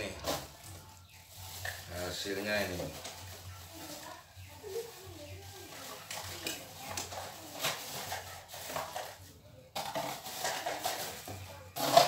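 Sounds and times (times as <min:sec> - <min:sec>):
popcorn rustling and crunching: 0:00.0 - 0:12.0
plastic cup scraping and clattering: 0:05.7 - 0:12.0.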